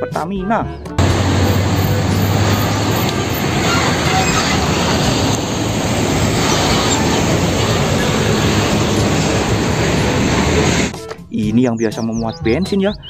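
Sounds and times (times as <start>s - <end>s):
diesel truck engine rumbling: 1.0s - 11.2s
tyre and road noise: 1.0s - 11.2s.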